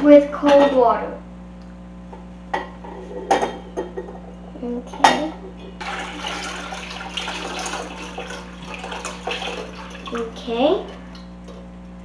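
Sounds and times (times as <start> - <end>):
water pouring into pot: 5.8 - 10.4.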